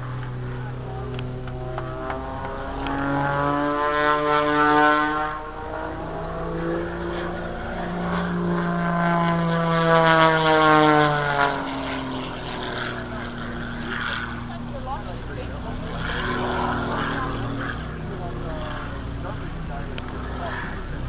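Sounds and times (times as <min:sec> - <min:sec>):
propeller plane engine droning: 0:00.0 - 0:21.0.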